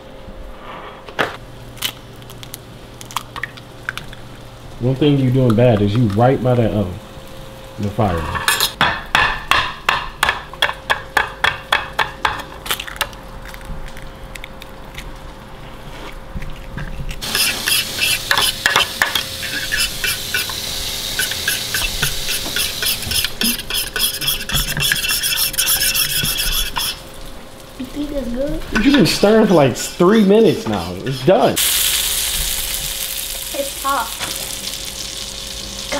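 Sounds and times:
meat sizzling in a pan: 17.2s - 35.9s.

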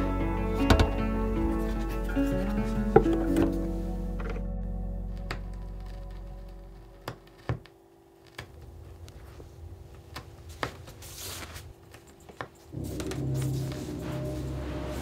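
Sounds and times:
music: 0.0s - 7.2s, 12.8s - 15.0s
vinyl surface crackle and pops: 5.1s - 14.6s.

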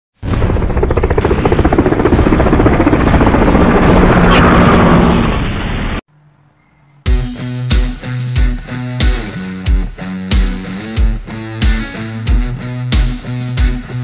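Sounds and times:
helicopter rotor chopping: 0.4s - 6.0s.

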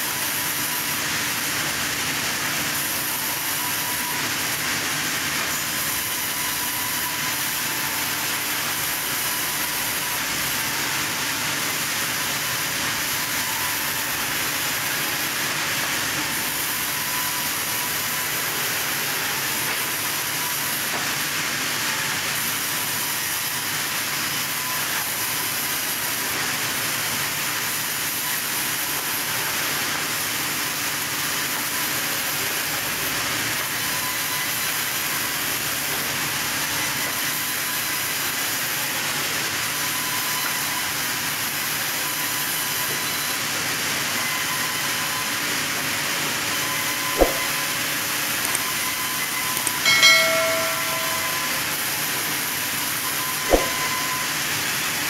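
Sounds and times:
band saw cutting wood: 0.1s - 23.7s, 44.2s - 55.0s.

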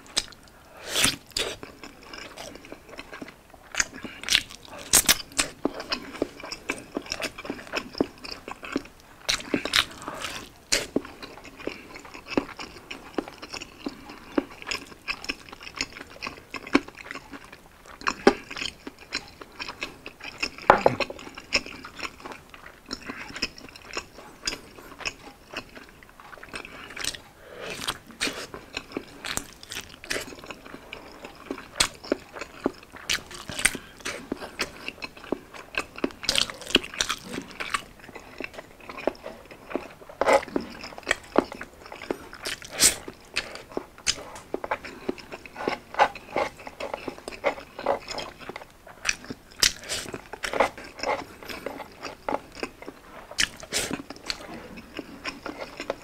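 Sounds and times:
person biting and chewing: 0.1s - 2.7s, 3.8s - 6.0s, 8.2s - 12.6s, 26.9s - 56.0s.

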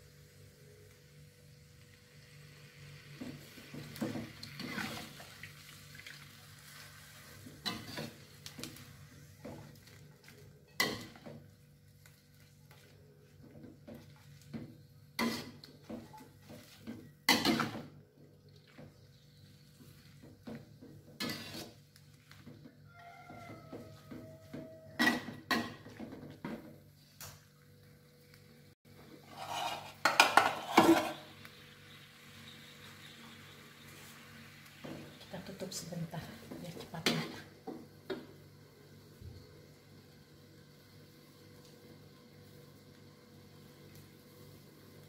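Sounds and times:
metal spatula scraping a wok: 4.5s - 5.2s, 6.6s - 8.4s, 15.2s - 15.7s, 21.1s - 21.8s, 29.1s - 31.3s.

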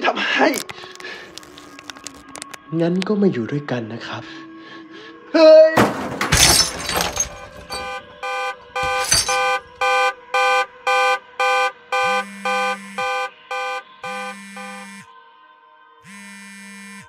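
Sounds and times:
brief crash: 5.8s - 7.9s
low buzzing tone: 12.1s - 13.1s, 14.0s - 15.0s, 16.1s - 17.0s.

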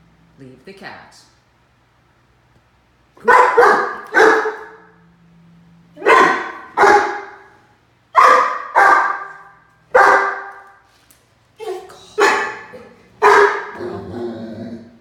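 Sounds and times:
puppy barking: 3.2s - 5.0s, 6.0s - 10.8s, 11.7s - 14.0s.

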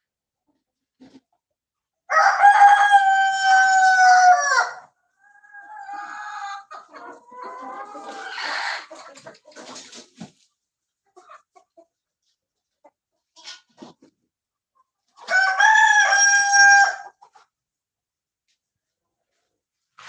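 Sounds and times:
chickens clucking: 0.3s - 2.0s, 5.1s - 17.8s
rooster crowing: 2.1s - 4.8s, 15.3s - 17.1s.

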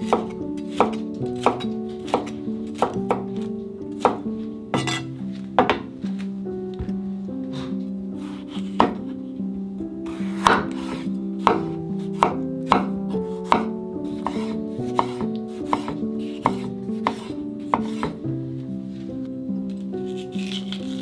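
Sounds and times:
knife cutting tomato: 0.0s - 3.2s, 4.8s - 5.2s, 10.1s - 18.2s, 19.7s - 21.0s
soft background music: 0.0s - 21.0s
knife knocking on wooden board: 4.8s - 5.9s, 14.3s - 18.2s.

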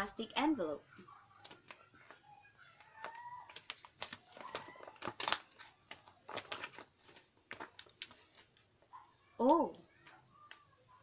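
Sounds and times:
plastic envelope crinkling: 1.2s - 8.7s.

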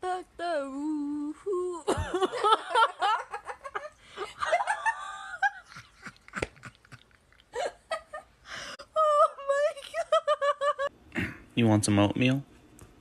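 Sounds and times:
person laughing: 1.7s - 8.4s, 9.0s - 11.4s.

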